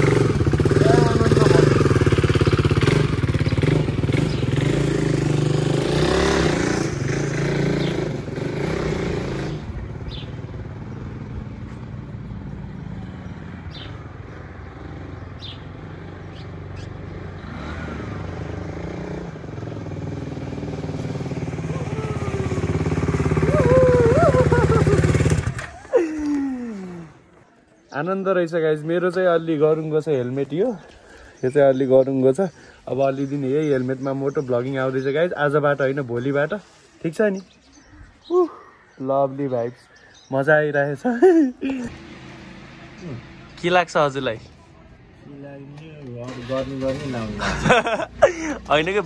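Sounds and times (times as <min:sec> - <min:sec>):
motorcycle engine running: 0:00.0 - 0:17.3, 0:18.1 - 0:25.8.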